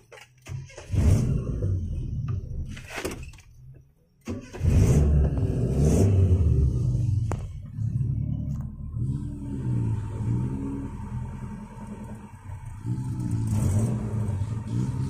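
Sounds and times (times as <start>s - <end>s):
off-road engine running hard: 4.6s - 15.0s.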